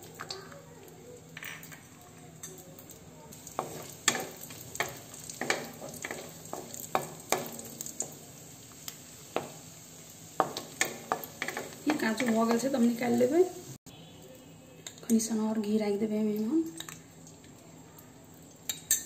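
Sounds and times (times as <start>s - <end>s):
faint sizzle: 0.0s - 19.0s.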